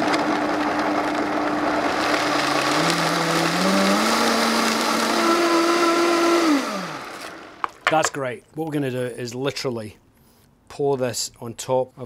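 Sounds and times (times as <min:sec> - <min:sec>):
blender running at high speed: 0:00.0 - 0:07.8.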